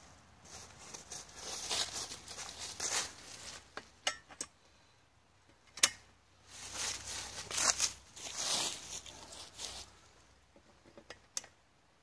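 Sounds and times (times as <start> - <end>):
footsteps in dry leaves: 0.0 - 3.8, 6.4 - 10.1
metal frame clinks and click: 4.0 - 4.5.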